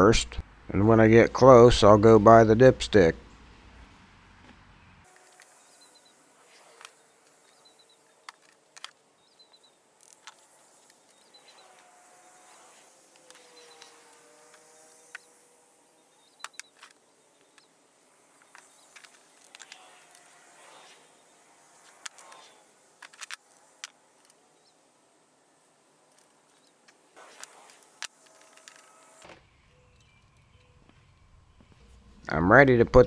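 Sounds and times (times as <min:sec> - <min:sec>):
faint high chirps: 0:29.6 - 0:32.0.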